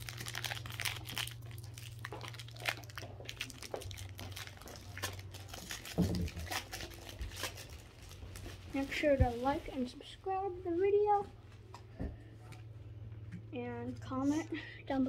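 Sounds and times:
foil wrapper crinkling and tearing: 0.0 - 9.0.

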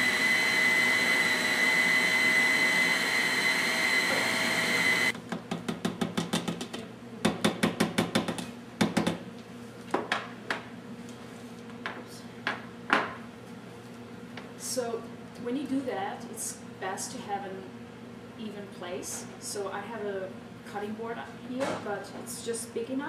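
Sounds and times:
food processor motor whining: 0.0 - 5.2.

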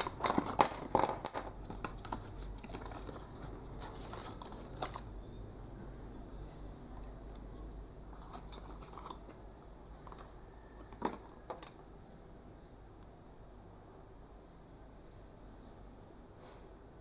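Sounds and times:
plastic parts clicking: 0.0 - 5.2, 10.0 - 11.8
paper and cardboard rustling: 0.0 - 5.3, 6.4 - 11.8.

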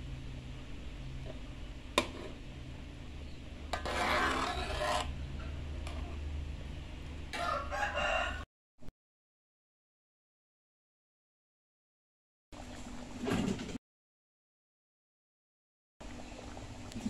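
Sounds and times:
metal spatula scraping a wok: 2.0 - 2.4, 3.7 - 6.3.

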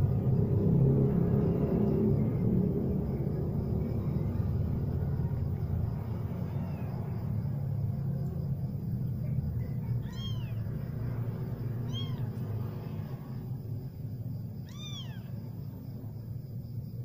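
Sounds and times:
kitten mewing: 10.0 - 10.7, 11.8 - 12.4, 14.6 - 15.4.

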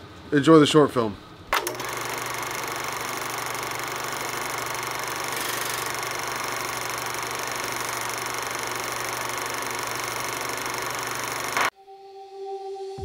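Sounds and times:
film projector whirring: 1.5 - 11.7.

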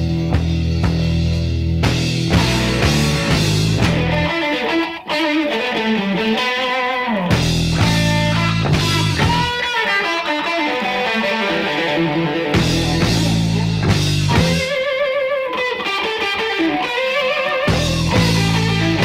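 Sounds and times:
bass and drums: 0.0 - 4.5, 7.3 - 9.8, 12.4 - 15.0, 17.6 - 19.0
blues rock electric guitar lead: 0.0 - 19.0.

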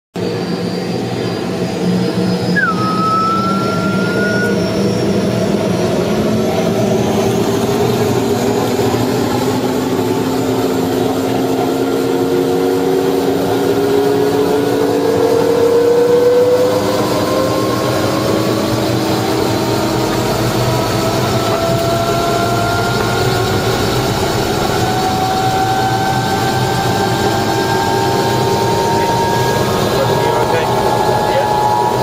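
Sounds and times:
helicopter engine and rotor: 0.2 - 32.0
short whistling tone: 2.5 - 4.9.

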